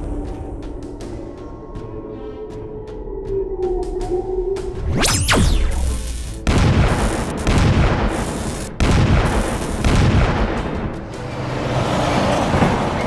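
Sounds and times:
music: 0.0s - 13.0s
cartoon explosion booms: 4.9s - 10.6s.

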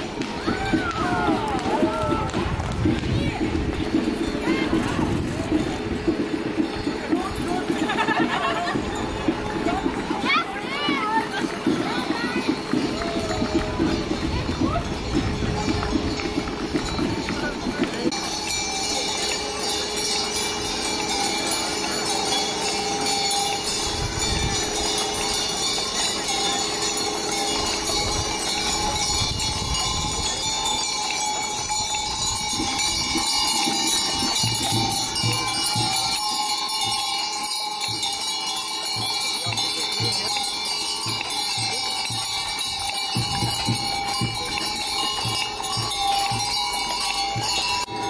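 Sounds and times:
harness bells and chains jingling: 0.0s - 48.0s.

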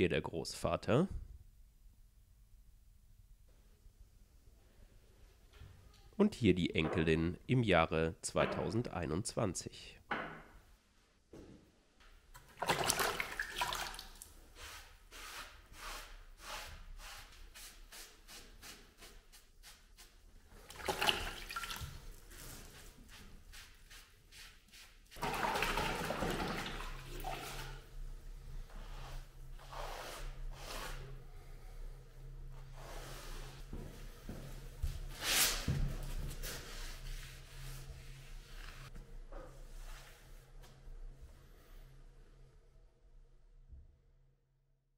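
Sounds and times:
water splashing and trickling: 12.4s - 14.3s, 20.6s - 22.7s, 25.2s - 27.8s.

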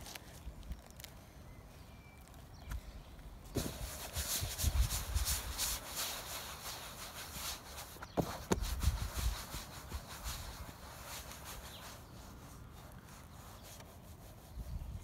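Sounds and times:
rustling and rubbing: 3.5s - 15.0s
wind on microphone: 3.6s - 5.8s, 8.5s - 10.8s, 14.4s - 15.0s.

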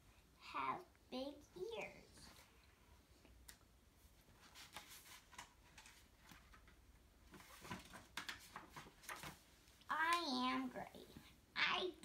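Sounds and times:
book page turning: 4.3s - 9.4s.

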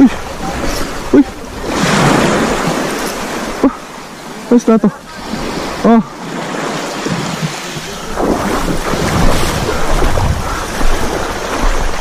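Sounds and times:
sea waves: 0.0s - 12.0s
wind buffeting microphone: 5.2s - 12.0s.

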